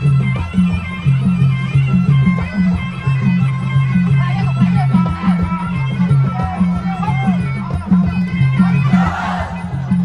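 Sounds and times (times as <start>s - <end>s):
drums beating: 8.6s - 10.0s.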